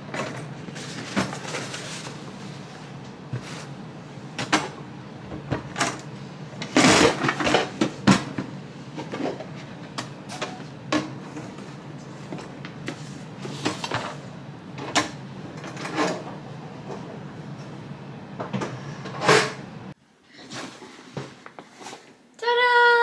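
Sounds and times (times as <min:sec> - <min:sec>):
scraping rustle: 0:00.7 - 0:02.7.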